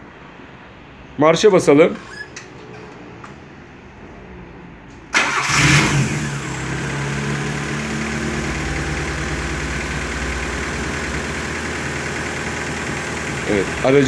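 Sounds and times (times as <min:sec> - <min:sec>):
car engine starting and idling: 0:04.8 - 0:14.0.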